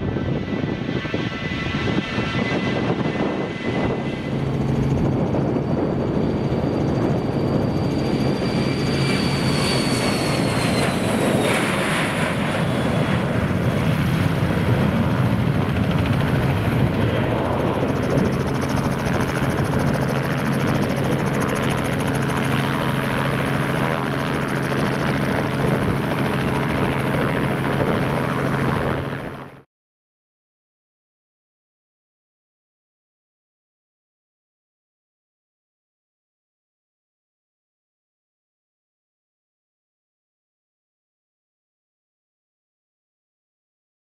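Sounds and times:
jet taking off: 0.0s - 29.1s.

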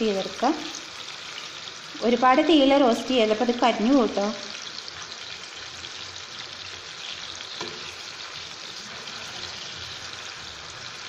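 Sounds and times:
food sizzling in hot oil: 0.0s - 11.0s
spatula turning food: 4.6s - 11.0s.

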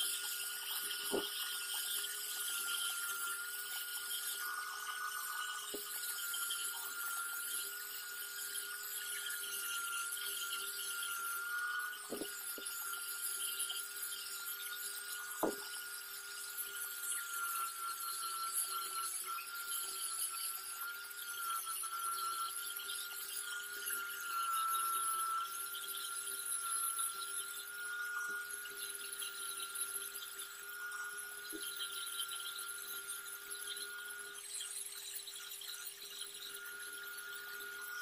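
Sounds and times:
angle grinder sanding: 10.4s - 13.0s, 15.2s - 15.7s.

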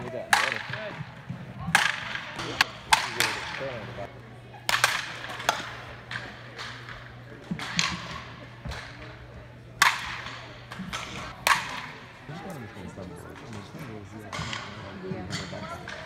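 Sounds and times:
bat hitting balls: 0.3s - 1.1s, 1.7s - 9.1s, 9.8s - 12.3s.

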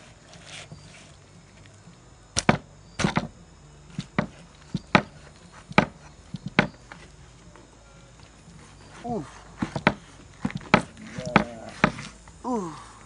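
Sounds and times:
knife chopping on wooden board: 4.0s - 6.8s, 9.6s - 12.1s.

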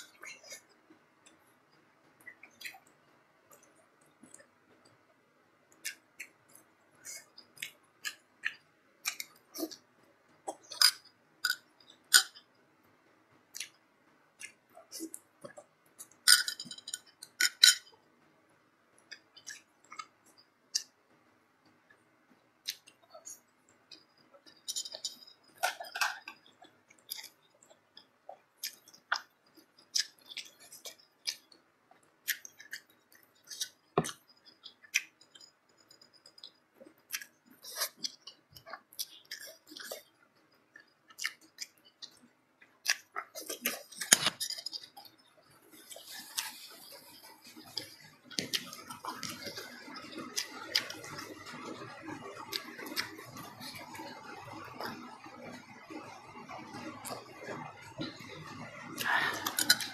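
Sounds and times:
wet chewing: 19.0s - 21.0s, 22.6s - 59.9s.

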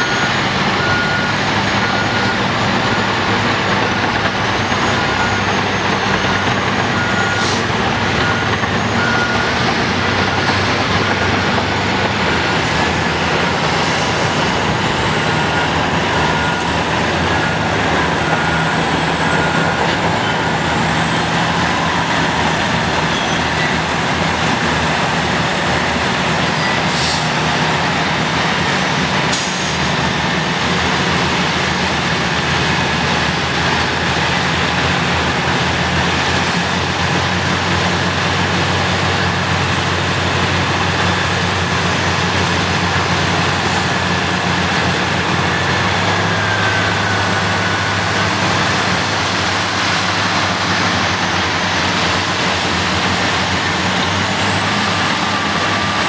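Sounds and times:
back-up alarm beeping: 0.0s - 26.9s, 44.5s - 56.0s
heavy diesel engines under load: 0.0s - 56.0s.

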